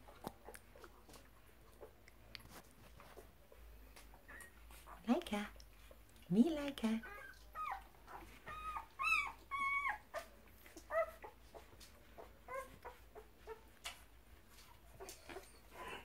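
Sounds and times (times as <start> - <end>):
dog whining: 7.0 - 11.4, 12.2 - 13.7, 15.0 - 16.0.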